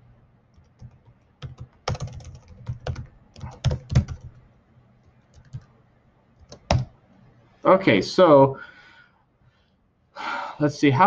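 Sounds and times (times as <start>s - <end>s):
computer keyboard typing: 0.5s - 4.4s, 5.1s - 5.7s, 6.4s - 7.0s.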